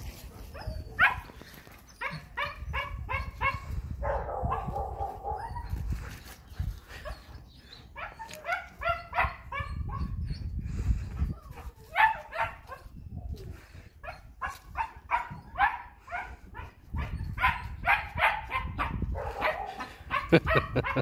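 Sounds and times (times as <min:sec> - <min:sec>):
puppies yipping and barking: 0:00.0 - 0:10.6, 0:11.2 - 0:21.0.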